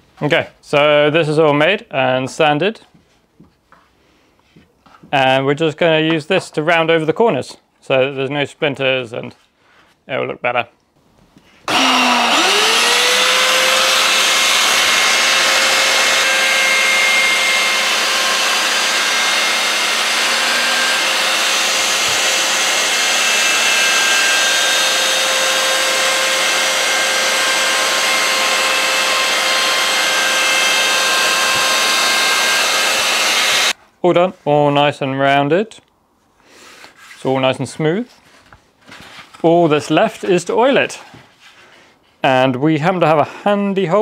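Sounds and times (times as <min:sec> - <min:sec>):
electric router whining: 0:11.7 - 0:33.8.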